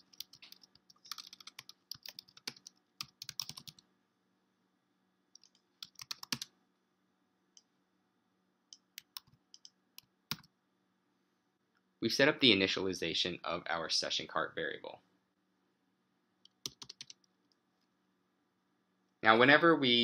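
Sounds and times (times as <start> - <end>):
typing on keyboard: 0.0 - 3.8, 5.4 - 6.5, 8.7 - 10.5, 16.5 - 17.3
faint steady hum: 0.0 - 20.0.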